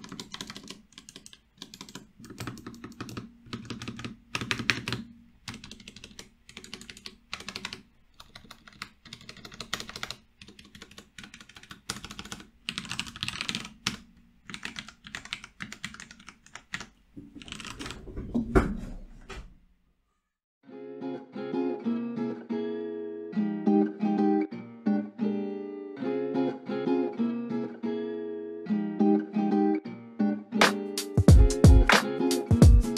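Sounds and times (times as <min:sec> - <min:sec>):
mechanical keyboard typing: 0:00.0 - 0:18.0.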